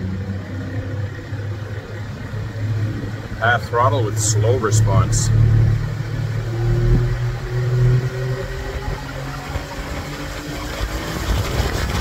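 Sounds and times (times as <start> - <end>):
outboard motor droning: 0.0 - 12.0.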